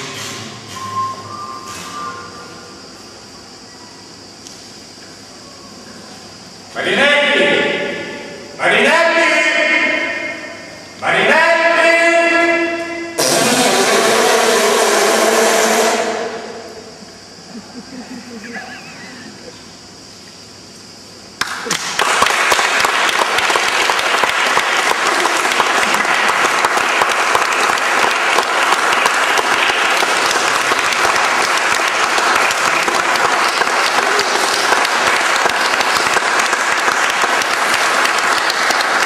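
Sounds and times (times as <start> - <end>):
audience applauding: 21.4 - 39.0.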